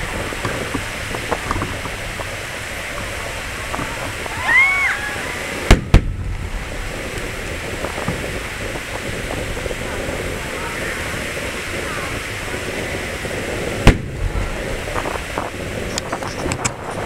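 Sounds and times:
fireworks bangs: 0.0s - 17.0s
small crackles: 13.9s - 17.0s.

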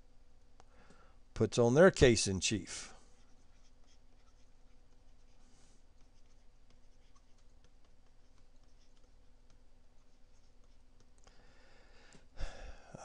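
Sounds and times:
faint electrical hum: 0.0s - 13.0s
stylus tapping on tablet screen: 5.9s - 11.3s.

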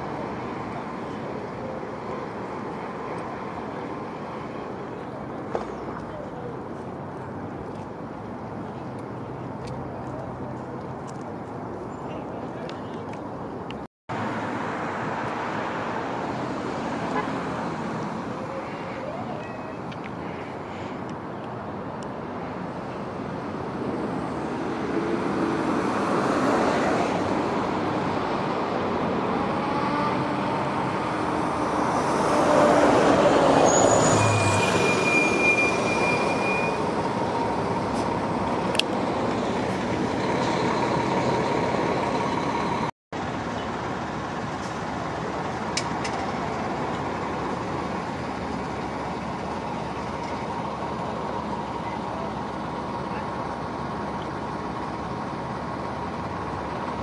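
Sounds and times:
buses and traffic passing: 0.0s - 57.0s
brief high squeal: 33.5s - 37.0s.

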